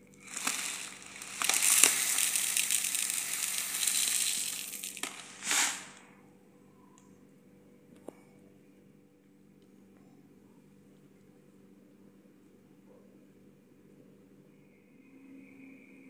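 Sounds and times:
lentils pouring into bowl: 0.0 - 6.1
plastic bag rustle: 0.0 - 6.1.

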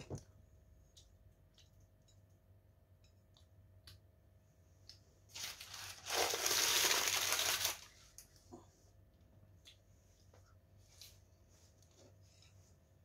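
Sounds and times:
paper bag crumpling: 5.3 - 8.0.

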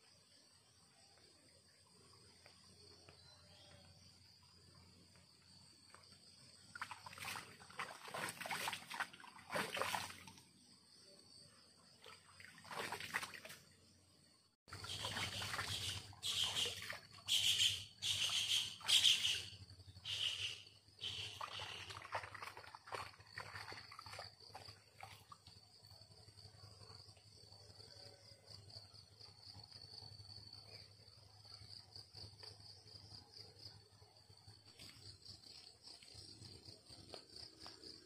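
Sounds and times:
crickets chirring: 0.0 - 38.0
water splashing and trickling: 5.9 - 10.7, 11.9 - 13.9, 14.7 - 17.5, 21.0 - 26.2.

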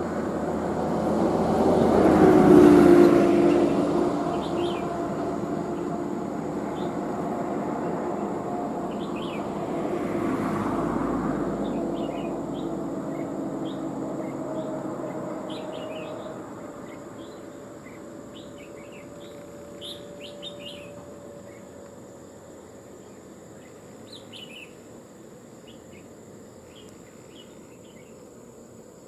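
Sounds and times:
vehicle engine droning: 0.0 - 24.6.

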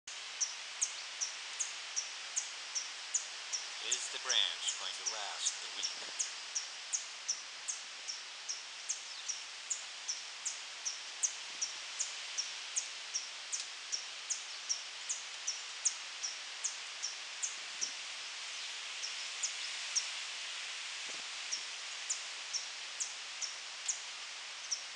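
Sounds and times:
wind rustling treetops: 0.1 - 24.9
hummingbird chirping: 2.8 - 11.0.

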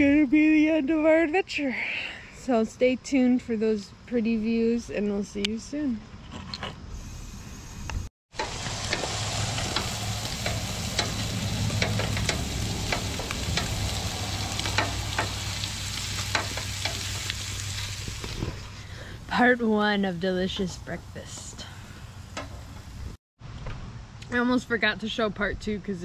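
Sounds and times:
sausage sizzling on a griddle: 8.3 - 18.8.

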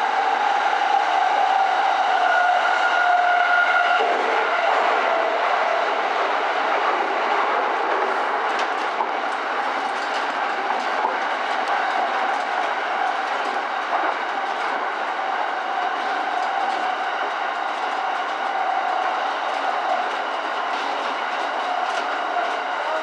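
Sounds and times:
electric train whine: 0.0 - 23.0
rail-joint clicks: 7.9 - 23.0.

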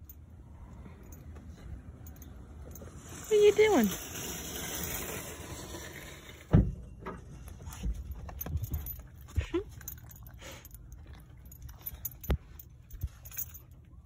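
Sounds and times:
collar tags jingling: 0.0 - 4.1, 7.3 - 14.0.

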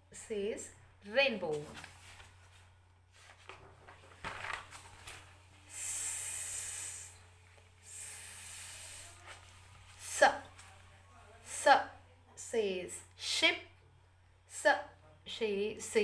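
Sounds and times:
low electrical hum: 0.0 - 16.0
woman making hissing s sound: 5.7 - 7.2, 7.8 - 9.3.

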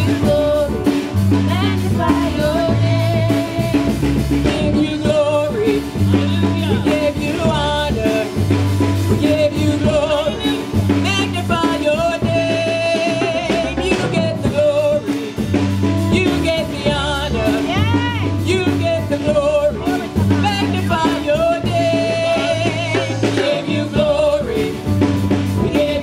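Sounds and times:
low bass line: 0.0 - 26.0
steady drum beat: 0.0 - 26.0
voices singing: 0.0 - 26.0.

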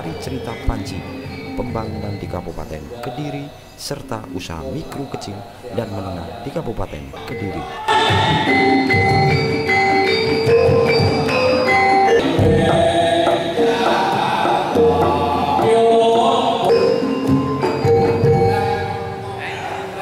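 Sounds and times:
metallophones ringing held notes: 7.4 - 19.8.

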